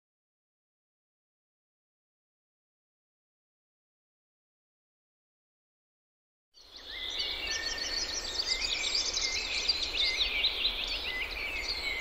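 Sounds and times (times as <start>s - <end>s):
songbirds chirping and trilling: 6.6s - 12.0s.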